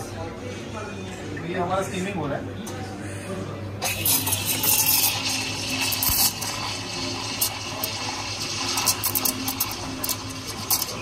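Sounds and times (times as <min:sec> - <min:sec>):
steam wand hissing in milk: 0:03.8 - 0:11.0.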